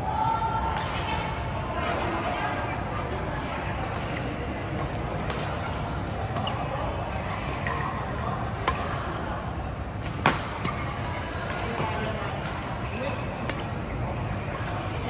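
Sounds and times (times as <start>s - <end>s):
voices: 0.0s - 15.0s
racket striking shuttlecock: 8.6s - 8.9s, 10.0s - 10.8s.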